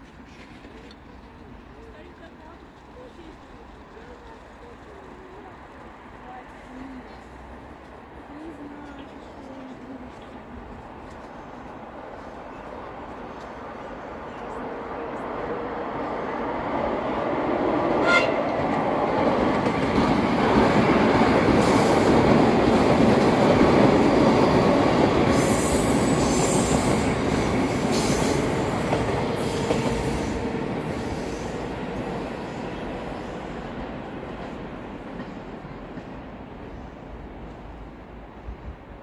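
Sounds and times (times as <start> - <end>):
rail joint clicks: 0.0 - 11.9, 17.9 - 36.4
train wheels rumbling on rail: 0.0 - 39.0.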